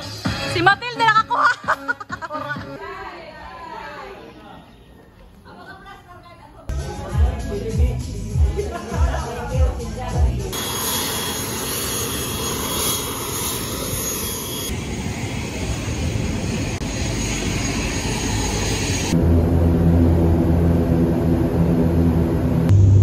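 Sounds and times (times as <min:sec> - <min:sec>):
turboprop engine whir: 0:10.5 - 0:23.0
wind: 0:10.5 - 0:23.0
low droning cabin hum: 0:18.9 - 0:23.0.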